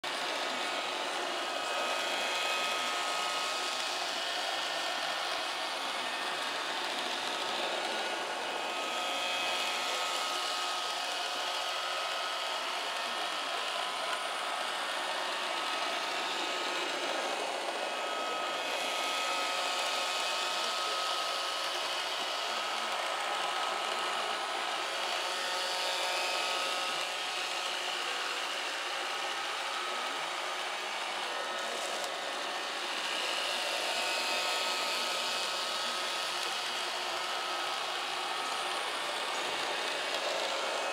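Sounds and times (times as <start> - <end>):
robot vacuum whirring: 0.1 - 40.9.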